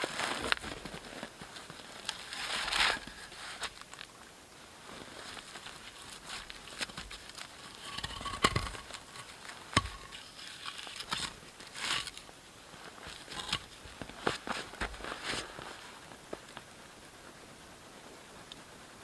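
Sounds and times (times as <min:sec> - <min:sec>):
snow crunching: 0:00.0 - 0:04.0, 0:04.6 - 0:16.5
log fire crackling: 0:00.0 - 0:19.0
clothing rustling: 0:12.7 - 0:16.0.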